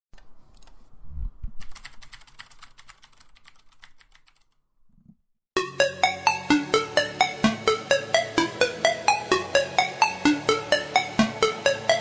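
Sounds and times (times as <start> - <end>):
rapid keyboard typing clicks: 1.6 - 4.6
electronic music with steady beat: 5.6 - 12.0.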